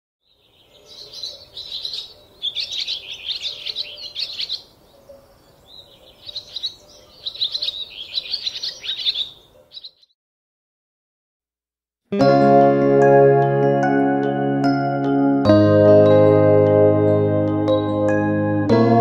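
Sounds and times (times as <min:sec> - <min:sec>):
birds chirping and twittering: 0:00.2 - 0:10.2.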